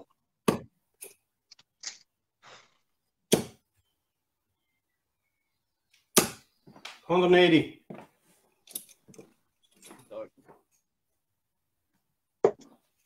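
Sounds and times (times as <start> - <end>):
darts thudding into dartboard: 3.3 - 3.7, 6.1 - 6.5.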